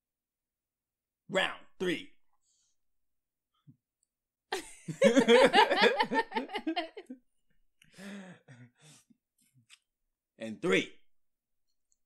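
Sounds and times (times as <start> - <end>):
man laughing heartily: 4.5 - 7.2.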